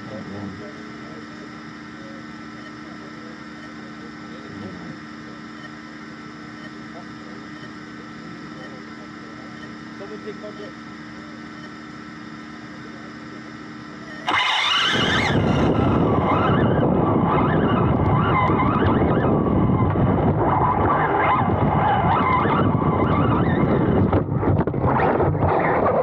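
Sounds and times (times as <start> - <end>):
faint electric hum: 0.0 - 21.8
electric motor whine: 0.0 - 26.0
rush of wind and tyre noise: 14.3 - 26.0.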